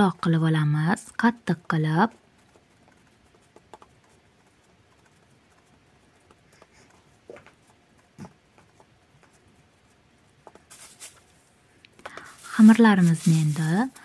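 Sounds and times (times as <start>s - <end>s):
hands patting dough: 0.0s - 14.0s.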